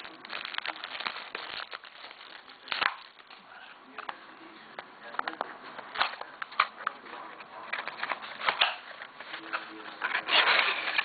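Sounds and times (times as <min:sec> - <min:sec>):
wrapper crinkling and rustling: 0:00.0 - 0:03.6.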